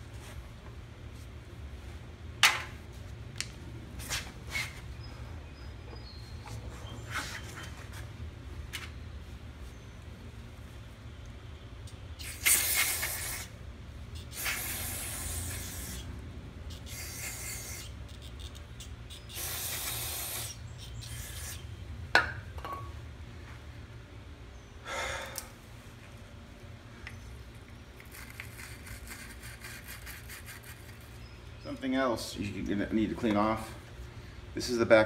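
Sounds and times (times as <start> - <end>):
aerosol spray hissing: 12.2 - 13.6, 14.2 - 16.1, 16.7 - 21.6.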